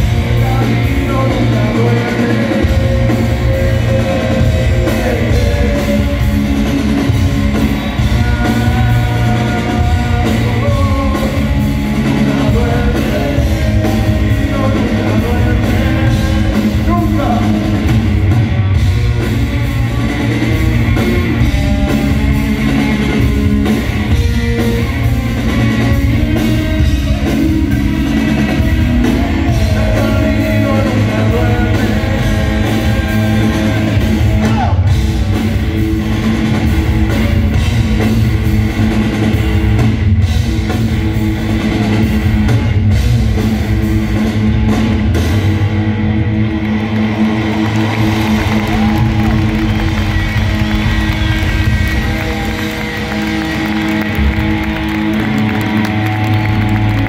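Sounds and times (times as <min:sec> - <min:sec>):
bass guitar: 0:00.0 - 0:57.0
drum kit: 0:00.0 - 0:57.0
electric guitars: 0:00.0 - 0:57.0
person singing: 0:00.2 - 0:17.8, 0:26.0 - 0:35.0.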